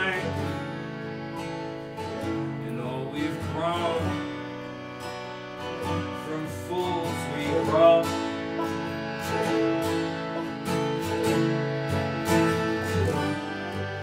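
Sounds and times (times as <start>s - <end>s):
man singing: 0.0s - 0.9s, 2.2s - 4.6s, 5.9s - 9.2s, 12.3s - 14.0s
banjo picking: 0.0s - 14.0s
keyboard sustained chords: 0.0s - 14.0s
strummed acoustic guitar: 0.0s - 14.0s.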